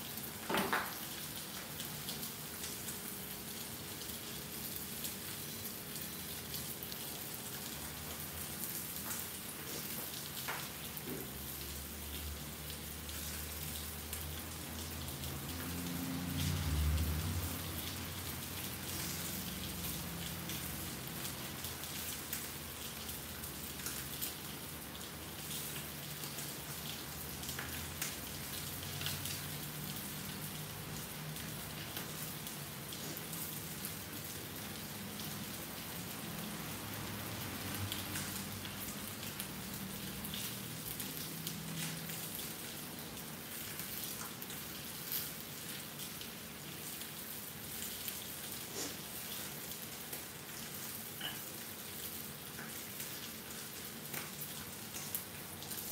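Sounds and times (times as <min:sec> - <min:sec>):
fish sizzling in oil: 0:00.0 - 0:55.9.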